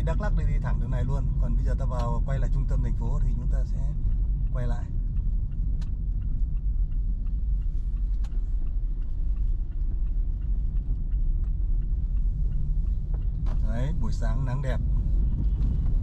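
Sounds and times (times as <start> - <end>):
road noise: 0.0 - 16.0
wind noise: 4.0 - 16.0.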